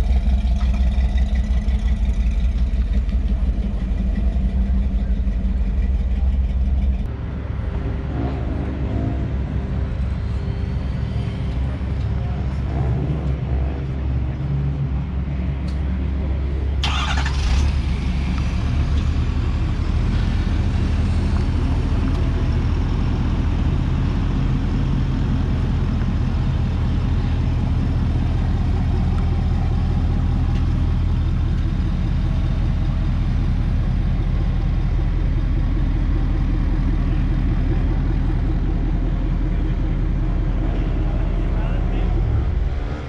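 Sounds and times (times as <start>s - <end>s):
car engine running: 0.0s - 7.1s, 16.8s - 43.0s.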